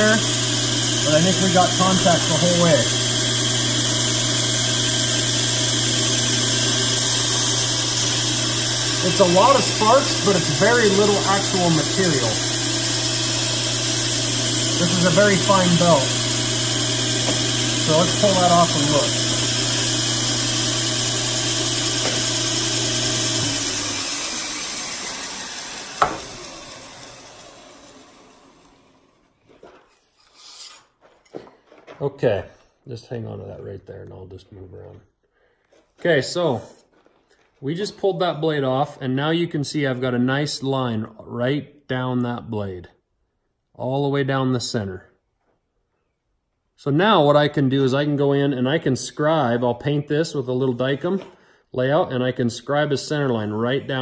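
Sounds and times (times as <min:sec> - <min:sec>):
belt grinder grinding steel: 0:00.0 - 0:29.2
motor hum: 0:00.0 - 0:29.3.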